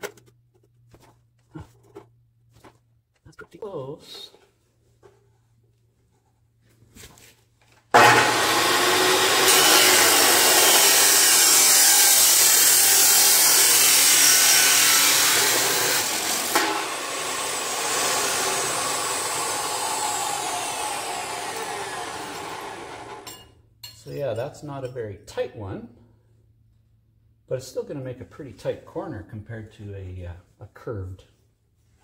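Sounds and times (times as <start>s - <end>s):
saw motor spinning down: 8.0s - 23.3s
chop saw grinding through steel tube: 8.0s - 23.4s.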